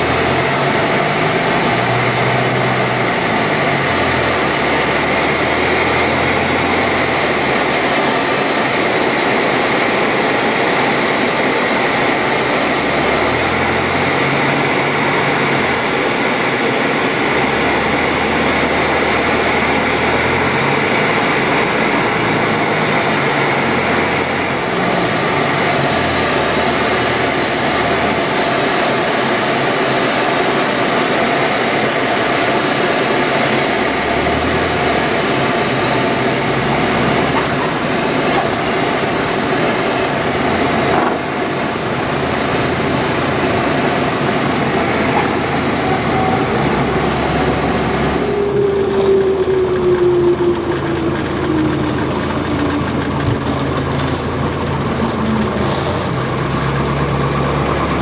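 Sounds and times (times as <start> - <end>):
airflow noise: 0.0 - 57.5
propeller plane engine drone: 0.0 - 58.0.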